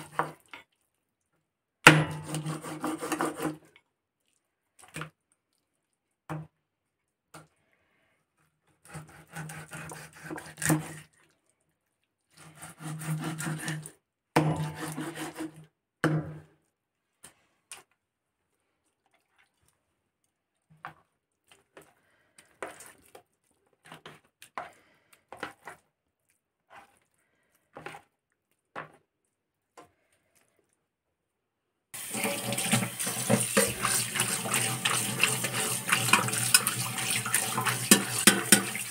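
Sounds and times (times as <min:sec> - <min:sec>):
knife sawing through fish: 0:02.2 - 0:03.7, 0:08.8 - 0:11.1, 0:12.3 - 0:14.0, 0:14.6 - 0:15.6, 0:33.2 - 0:38.9
tap running into steel sink: 0:32.2 - 0:38.9.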